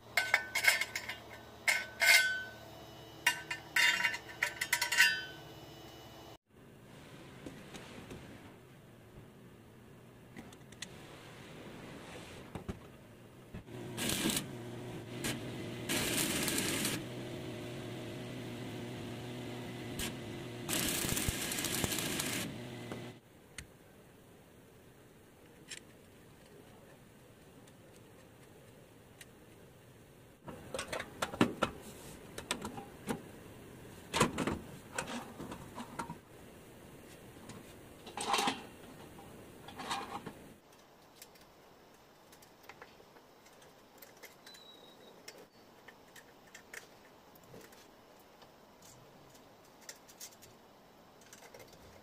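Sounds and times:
metal parts clicking and knocking: 0:00.1 - 0:02.4, 0:42.2 - 0:47.9, 0:51.2 - 0:52.0.

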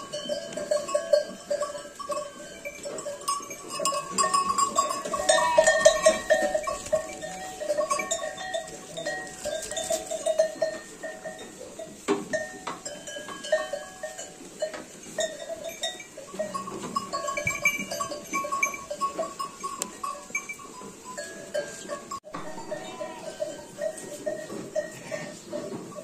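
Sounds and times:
lambs bleating: 0:05.1 - 0:07.5, 0:22.4 - 0:23.6.

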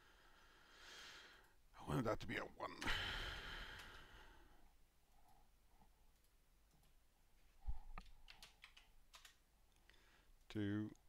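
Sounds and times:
computer mouse clicks: 0:07.9 - 0:10.0.

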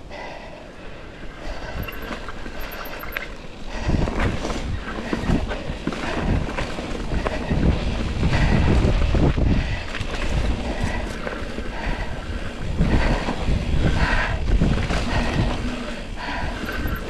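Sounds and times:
bike rattling and knocking: 0:01.4 - 0:17.0
wind rumbling on microphone: 0:01.4 - 0:17.0.

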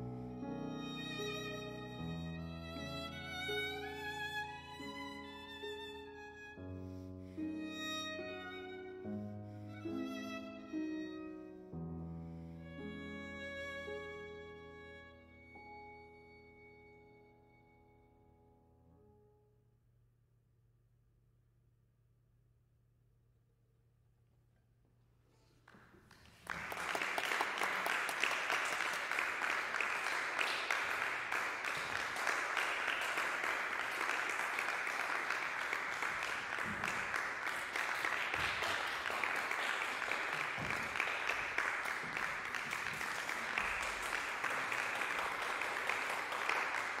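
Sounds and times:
audience applause: 0:25.6 - 0:47.0.

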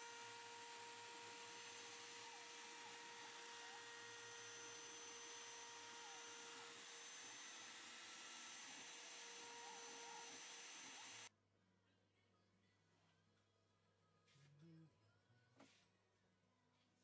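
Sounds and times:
milling spindle hum and whine: 0:00.0 - 0:11.3.

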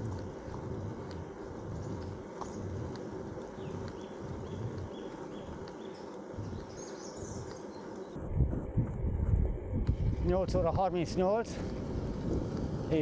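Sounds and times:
bicycle tyres rolling: 0:00.0 - 0:13.0
low rhythmic rumble: 0:00.0 - 0:13.0
faint bird chirps: 0:03.6 - 0:08.2.

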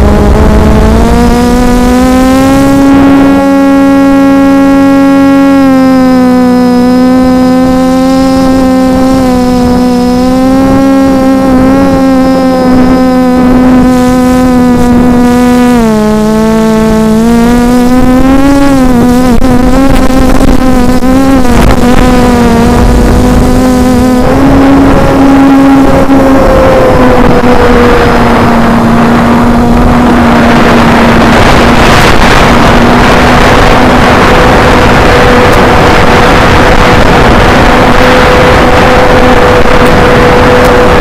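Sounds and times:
drone motors humming: 0:00.0 - 0:41.0
rushing noise: 0:08.4 - 0:41.0.

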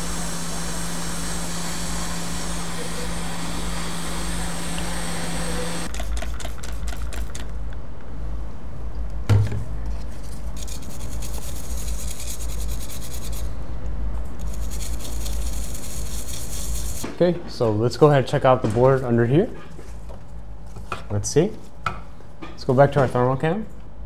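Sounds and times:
hot-air station rumble and hiss: 0:00.0 - 0:07.6, 0:10.2 - 0:17.2.

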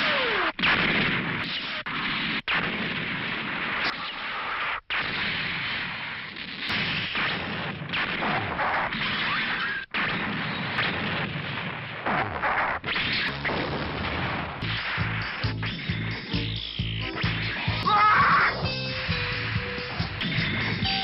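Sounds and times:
rapid gunfire: 0:00.0 - 0:16.4
explosions: 0:00.0 - 0:16.6, 0:17.2 - 0:21.0
crackling electric shocks: 0:00.0 - 0:17.9.

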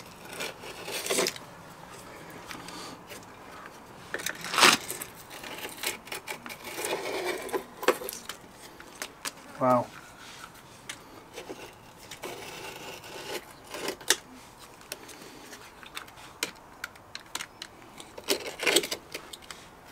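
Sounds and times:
knife blade scraping stone: 0:04.4 - 0:08.2, 0:11.4 - 0:14.2.

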